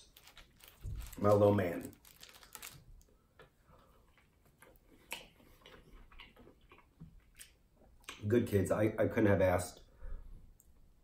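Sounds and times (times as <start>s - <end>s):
mouth clicks of chewing: 4.6s - 8.2s.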